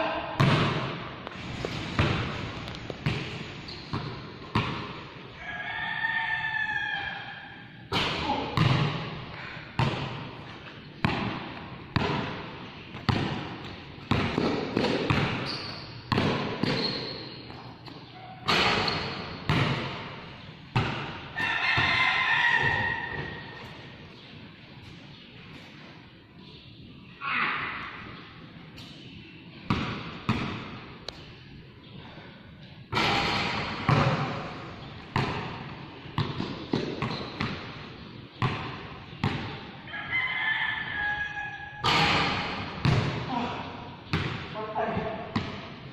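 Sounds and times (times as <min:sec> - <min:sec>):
basketball bouncing on concrete: 0:00.4 - 0:01.0, 0:01.9 - 0:05.0, 0:07.9 - 0:09.2, 0:09.8 - 0:10.2, 0:11.0 - 0:23.8, 0:29.7 - 0:30.8, 0:33.0 - 0:39.6, 0:41.8 - 0:43.4, 0:44.1 - 0:45.7.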